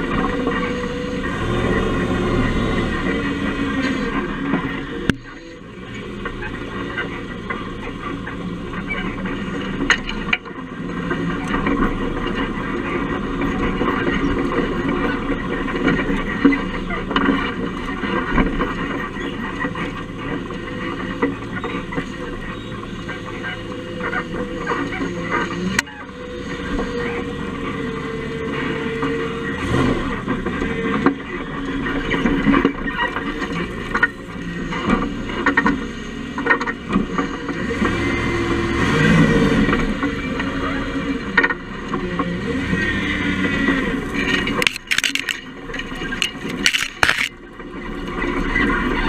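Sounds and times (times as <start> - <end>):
rumble of tyres and drivetrain: 0.0 - 49.0
knocks and rattles: 43.7 - 47.4.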